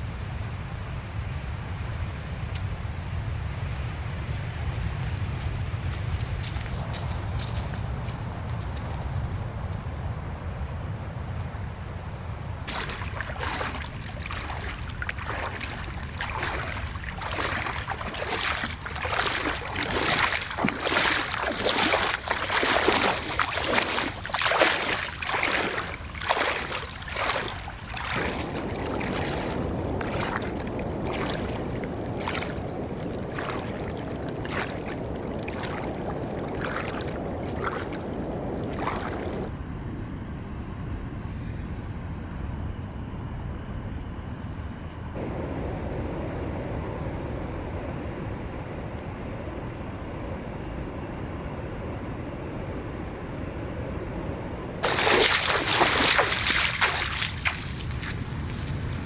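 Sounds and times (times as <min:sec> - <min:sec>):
wind noise: 0:00.0 - 0:59.0
footsteps splashing through water: 0:05.1 - 0:09.2, 0:12.7 - 0:39.5, 0:54.8 - 0:59.0
water washing: 0:12.7 - 0:39.5, 0:54.8 - 0:59.0.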